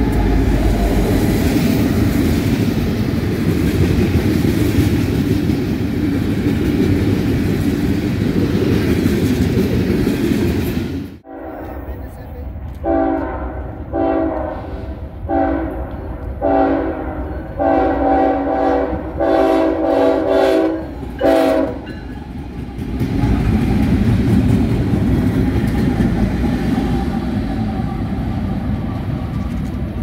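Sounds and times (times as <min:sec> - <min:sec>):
locomotives rumbling past on rails: 0:00.0 - 0:30.0
train air horn blasts: 0:11.2 - 0:11.9, 0:12.8 - 0:21.9.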